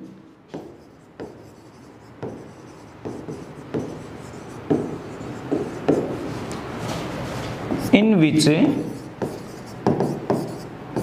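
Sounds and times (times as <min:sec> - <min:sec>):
pen tapping on screen: 0:04.7 - 0:06.2, 0:08.7 - 0:11.0.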